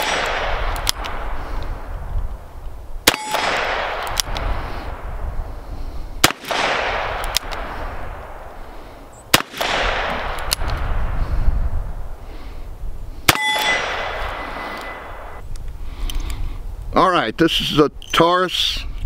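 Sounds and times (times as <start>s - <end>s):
rolling echo: 0.0s - 12.5s, 13.2s - 15.4s.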